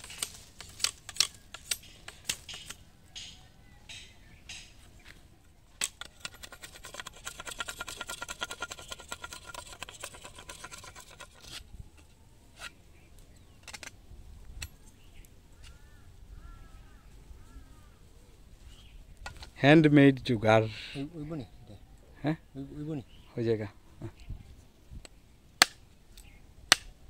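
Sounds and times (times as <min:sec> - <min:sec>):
blade scraping bamboo: 0:00.0 - 0:02.8, 0:05.8 - 0:11.7.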